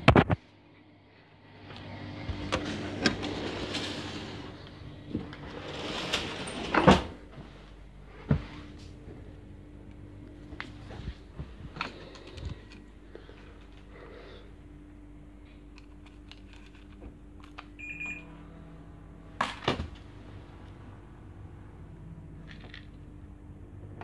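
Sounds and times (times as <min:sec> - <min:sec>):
low hum: 0:00.0 - 0:24.0
door opening and shutting: 0:02.2 - 0:07.2.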